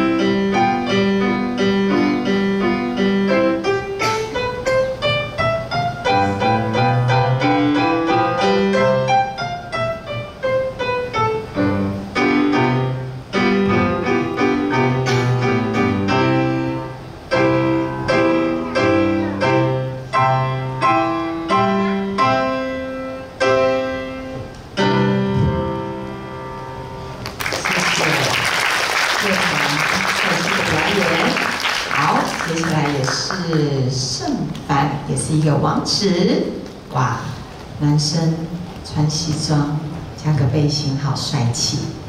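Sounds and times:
solo piano piece: 0:00.0 - 0:27.6.

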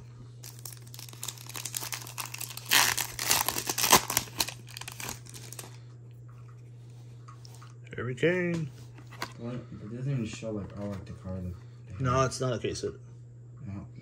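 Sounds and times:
foil wrapper crinkling and tearing: 0:00.4 - 0:05.8.

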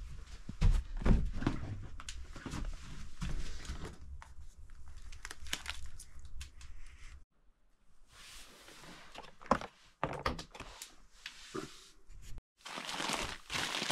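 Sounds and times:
paper packaging crinkling: 0:12.6 - 0:13.9.

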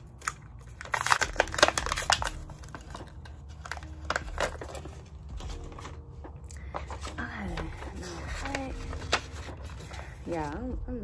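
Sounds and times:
plastic packaging torn open: 0:00.0 - 0:06.0.

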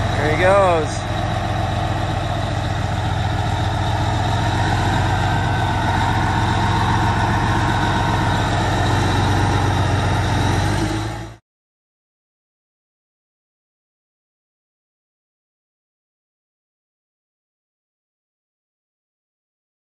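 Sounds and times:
diesel engines humming: 0:00.0 - 0:11.4.

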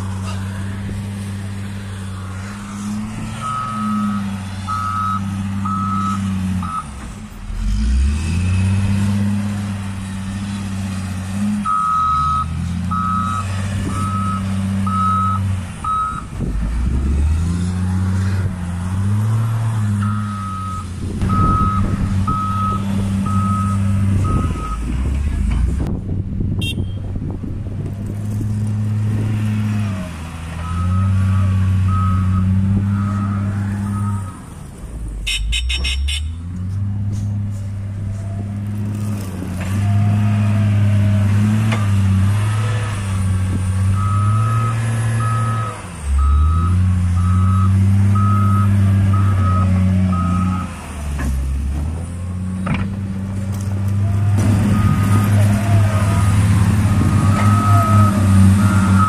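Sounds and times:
diesel engine revving: 0:00.0 - 0:59.0
reversing alarm beeps: 0:03.4 - 0:06.9, 0:11.7 - 0:16.3, 0:20.0 - 0:24.8, 0:31.9 - 0:34.4, 0:44.0 - 0:50.7, 0:57.2 - 0:59.0.

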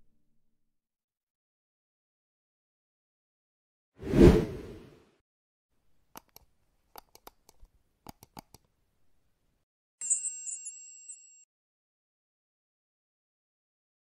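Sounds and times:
mouse clicks: 0:06.1 - 0:08.7.

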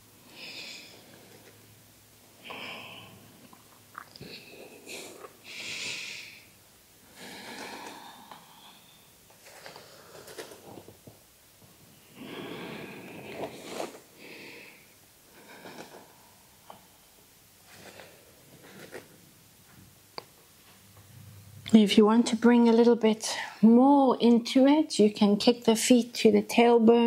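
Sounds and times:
woman breathing heavily: 0:00.2 - 0:01.5, 0:02.4 - 0:03.4, 0:04.3 - 0:10.7, 0:12.0 - 0:16.9.

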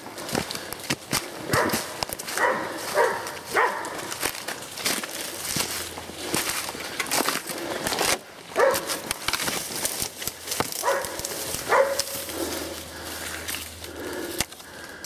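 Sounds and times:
fast footsteps through brush: 0:00.0 - 0:15.0
twigs and reeds crackling underfoot: 0:00.0 - 0:15.0
dog barking: 0:01.5 - 0:04.1, 0:08.6 - 0:09.0, 0:10.8 - 0:12.2.

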